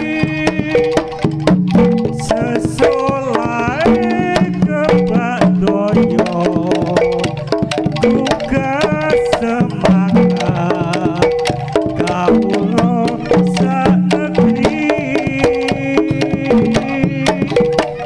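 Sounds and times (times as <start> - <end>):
struck metal gamelan notes: 0.0 - 18.0
wavering high melody: 0.0 - 18.0.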